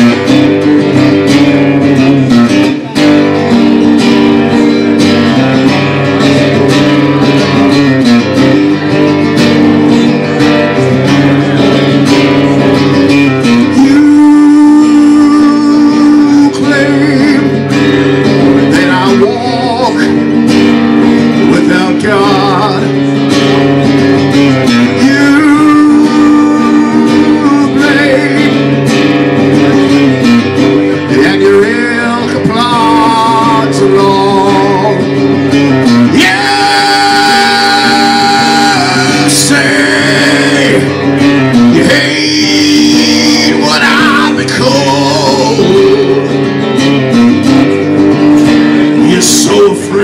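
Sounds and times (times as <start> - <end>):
electric guitar strumming: 0.0 - 50.0
man singing into a microphone: 10.0 - 47.9, 48.6 - 50.0.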